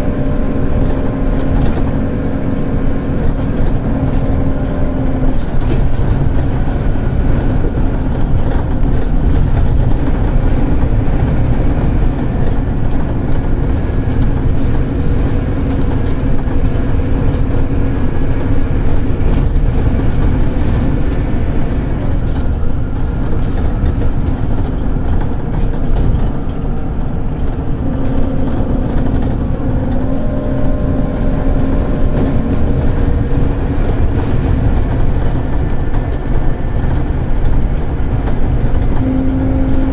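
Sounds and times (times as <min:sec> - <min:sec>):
bus diesel engine droning: 0:00.0 - 0:39.9.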